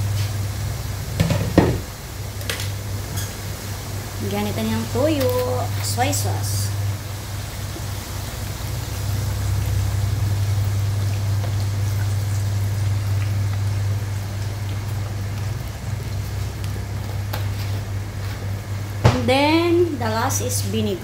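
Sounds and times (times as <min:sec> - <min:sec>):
liquid bubbling and sizzling: 0:00.0 - 0:21.0
steady low hum: 0:00.0 - 0:21.0.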